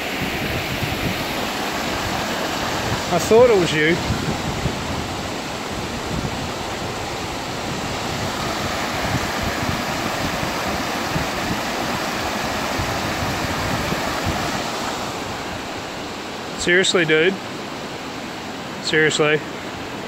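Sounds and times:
creek rushing over rocks: 0.0 - 20.0.

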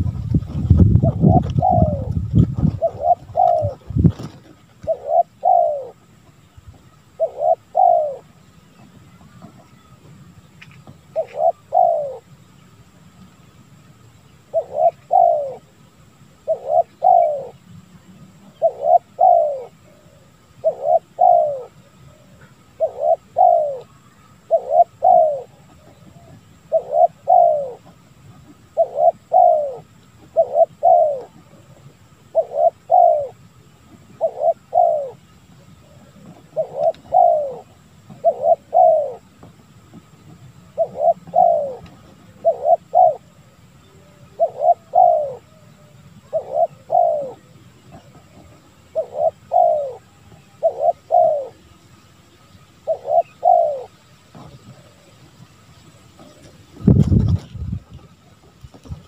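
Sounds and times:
dove cooing: 0.0 - 10.0, 10.9 - 12.3, 14.4 - 17.7, 18.3 - 51.8, 52.8 - 59.0.

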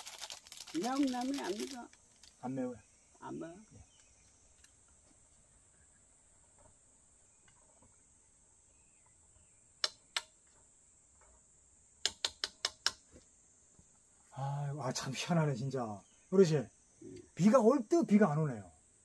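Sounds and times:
high-pitched insect chirring: 0.0 - 4.7
sharp clicks: 9.8 - 10.4, 12.0 - 13.0.

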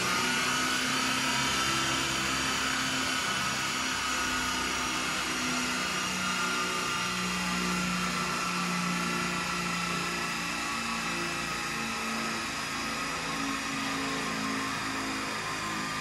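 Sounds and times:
diesel engine whirring drone: 0.0 - 16.0.

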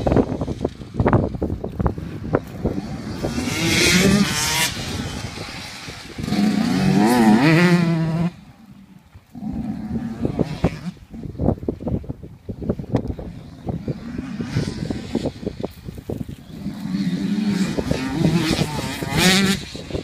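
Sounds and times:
dirt bikes revving: 0.0 - 20.0.

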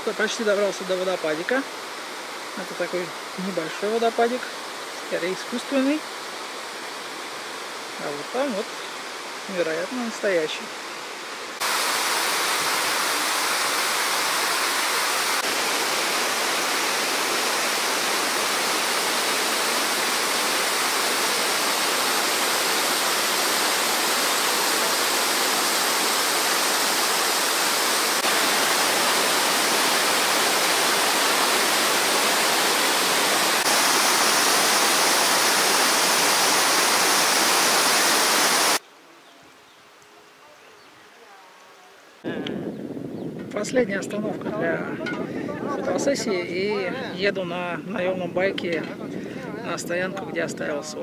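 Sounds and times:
waterfall rushing over rocks: 0.0 - 38.8.

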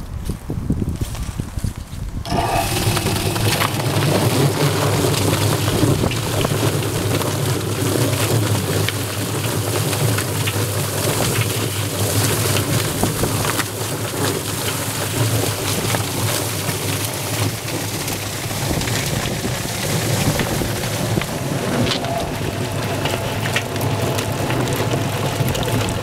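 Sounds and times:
electric motor humming: 2.3 - 6.9, 18.2 - 26.0
hose spraying water: 2.3 - 26.0.

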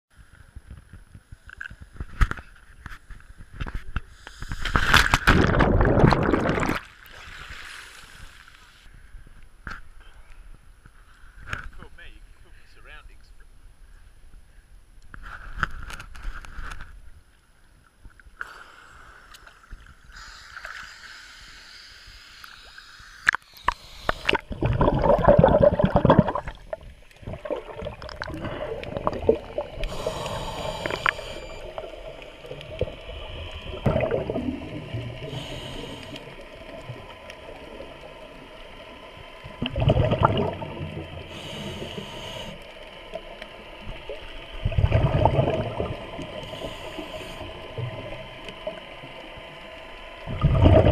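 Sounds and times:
muffled regulator bubbles gurgling: 5.3 - 6.8, 23.6 - 50.9
steady hum: 18.4 - 50.9.

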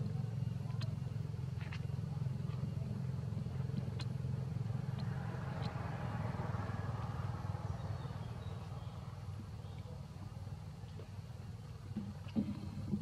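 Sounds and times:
faint ticks: 0.0 - 5.9
low engine drone: 0.0 - 13.0.

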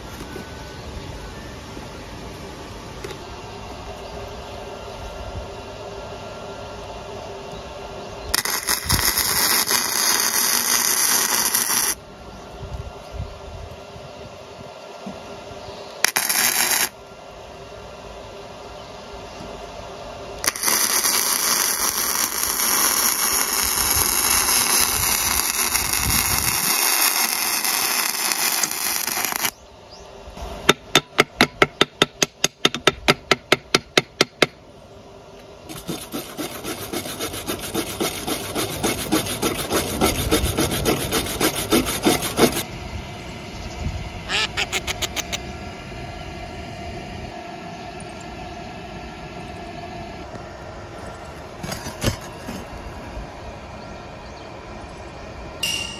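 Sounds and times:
welding arc crackling: 8.3 - 12.0, 16.0 - 17.0, 20.4 - 29.6.

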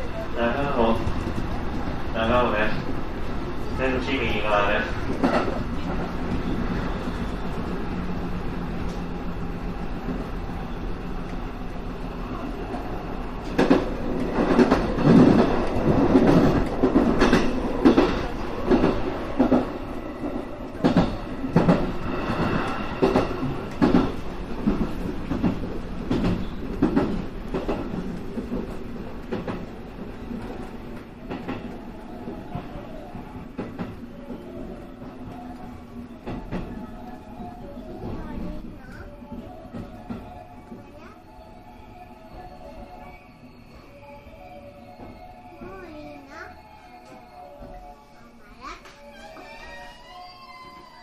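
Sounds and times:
electric train hum: 0.0 - 51.0
wheels clacking over rail joints: 13.4 - 21.9.

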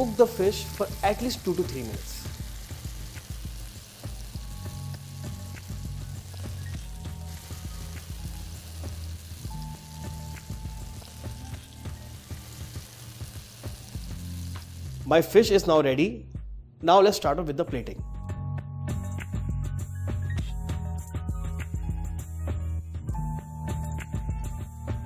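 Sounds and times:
fish sizzling in hot oil: 0.0 - 15.5.

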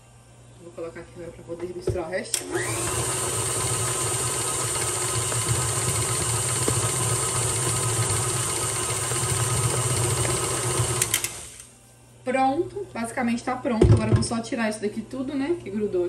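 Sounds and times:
stand mixer running: 2.4 - 11.7.

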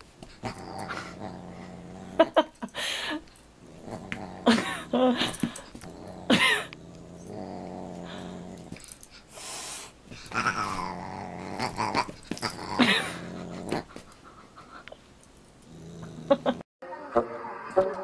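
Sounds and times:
dog growling: 0.4 - 2.6, 3.6 - 9.1, 10.2 - 14.2, 15.6 - 16.6.

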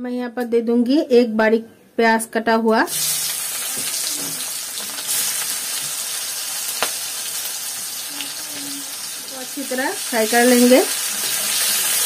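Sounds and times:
onion sizzling in hot oil: 2.9 - 12.0.

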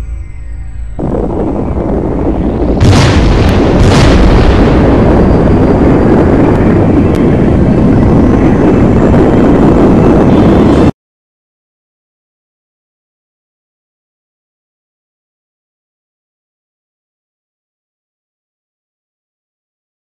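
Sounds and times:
rush of noise: 0.0 - 10.9
deep explosion rumble: 0.0 - 11.0
sharp cracks: 2.3 - 7.9.

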